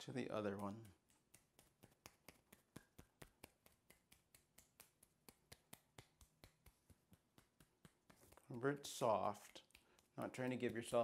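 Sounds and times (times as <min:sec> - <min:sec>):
hand tapping on arm: 0:00.4 - 0:11.0.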